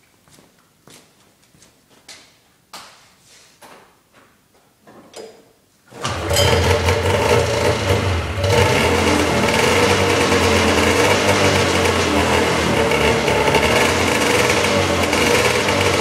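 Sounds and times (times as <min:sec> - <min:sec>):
snowmobile engine starting and running: 0:05.9 - 0:16.0.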